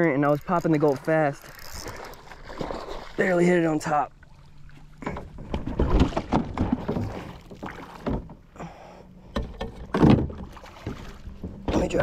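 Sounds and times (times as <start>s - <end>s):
knocks and clatter on kayak hull: 5.0s - 8.5s, 9.3s - 12.0s.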